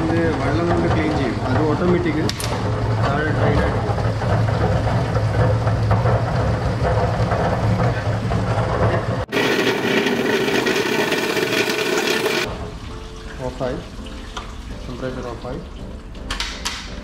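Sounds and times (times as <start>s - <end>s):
potato peeler motor humming: 9.3s - 12.5s
waste water pouring: 9.3s - 16.0s.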